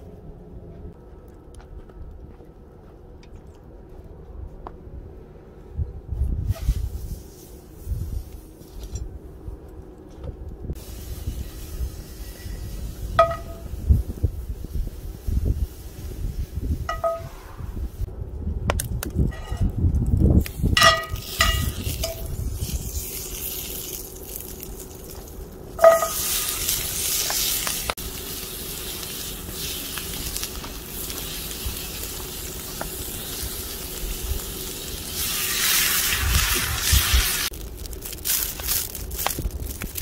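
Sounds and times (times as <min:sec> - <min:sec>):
water hissing in hot pan: 0:10.8 - 0:16.6, 0:25.9 - 0:37.6
meat sizzling in a skillet: 0:25.8 - 0:37.6.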